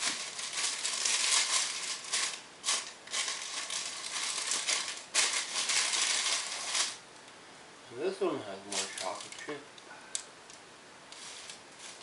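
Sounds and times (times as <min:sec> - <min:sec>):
bag crinkling and rustling: 0:00.0 - 0:07.0, 0:08.7 - 0:09.5, 0:11.2 - 0:12.0.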